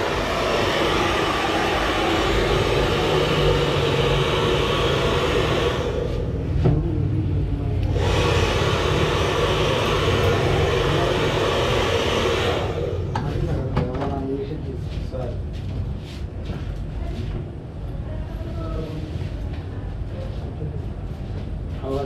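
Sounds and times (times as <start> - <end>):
hair dryer blowing: 0.0 - 6.8, 7.8 - 13.6.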